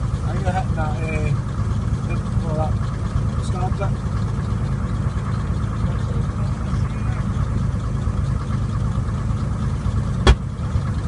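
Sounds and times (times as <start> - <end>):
low rumble: 0.0 - 11.0
sharp bang: 10.2 - 10.5.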